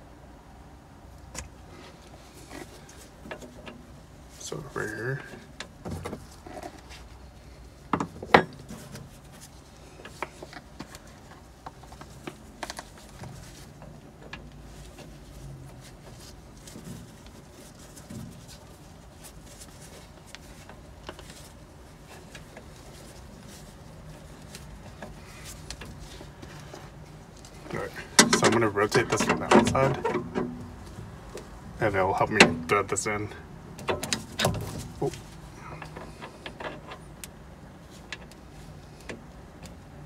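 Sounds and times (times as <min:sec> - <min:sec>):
gloved hands handling fitting: 0:05.2 - 0:31.7
light clicks and rubbing: 0:08.3 - 0:33.2.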